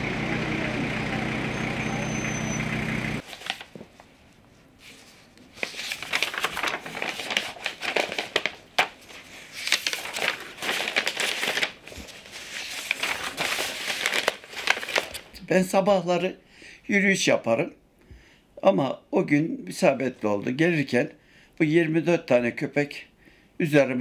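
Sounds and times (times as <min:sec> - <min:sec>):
paper sheets rustling: 0:03.2 - 0:15.4.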